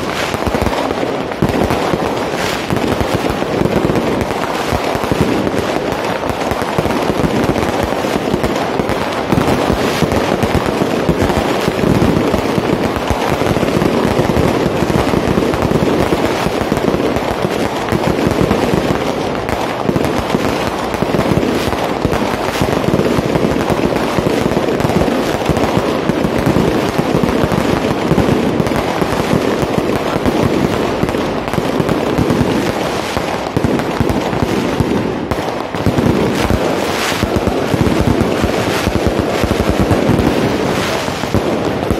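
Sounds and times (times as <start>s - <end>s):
fireworks crackling and banging: 0.0s - 41.9s.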